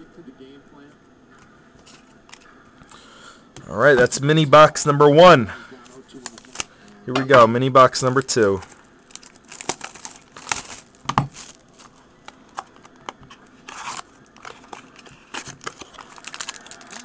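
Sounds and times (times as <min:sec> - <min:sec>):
plastic wrap crinkling and tearing: 0:06.1 - 0:06.6, 0:08.2 - 0:17.0.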